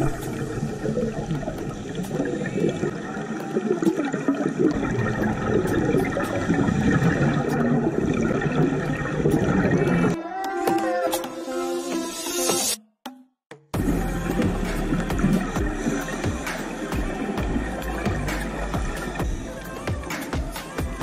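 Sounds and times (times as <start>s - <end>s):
underwater air bubbling: 0.0s - 10.2s, 13.8s - 20.1s.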